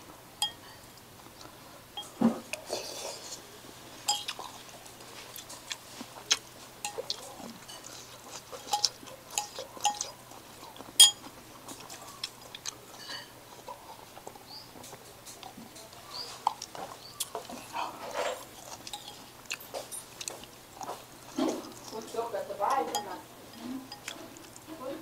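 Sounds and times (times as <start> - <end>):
spoon and chopsticks tapping bowl: 0.4 - 0.7, 4.1 - 4.4, 8.7 - 10.1, 11.0 - 11.2, 22.7 - 24.2
spoon clinking against bowl: 0.4 - 0.7, 4.1 - 4.4, 8.6 - 10.2, 11.0 - 11.2, 18.9 - 20.1, 22.7 - 24.2
chewing: 0.4 - 24.8.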